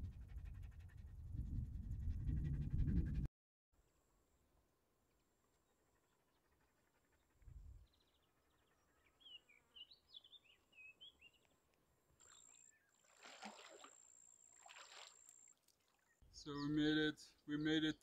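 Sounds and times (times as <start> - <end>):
wading through shallow water: 12.2 - 16.2.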